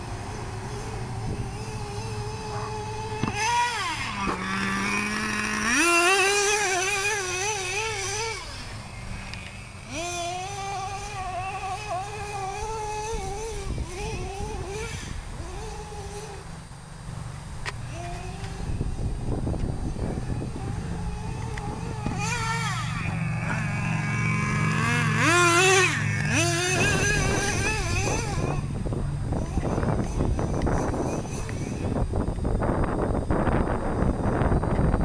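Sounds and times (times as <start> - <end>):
small nitro engine revving: 0.0 - 35.0.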